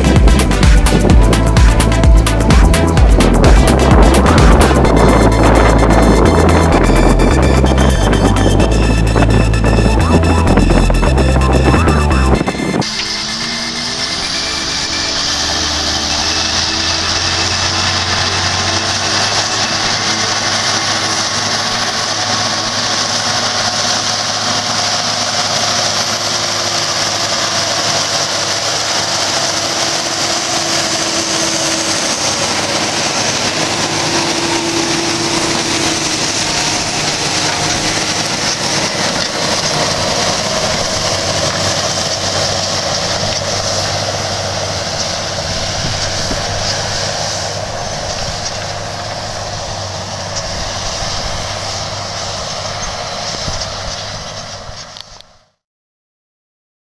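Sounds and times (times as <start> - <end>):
tractor diesel engine under load: 0.0 - 55.6.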